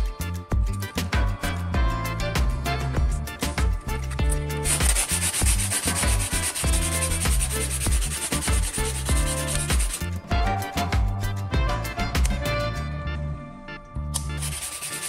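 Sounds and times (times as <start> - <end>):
background music: 0.0 - 15.0
sanding sponge scratching plastic: 4.6 - 10.2, 14.4 - 15.0.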